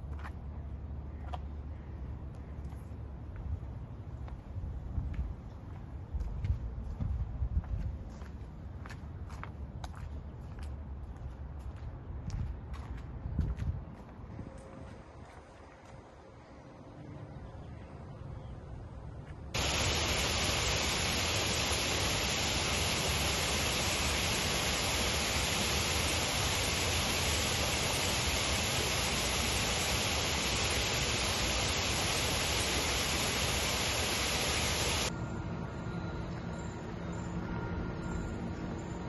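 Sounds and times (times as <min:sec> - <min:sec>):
steady static-like hiss: 0:19.6 - 0:35.1.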